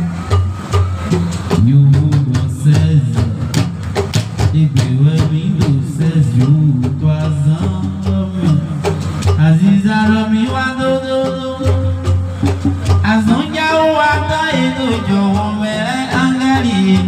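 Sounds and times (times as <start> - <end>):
sharp percussion strikes: 0.0 - 17.0
voices singing: 4.6 - 17.0.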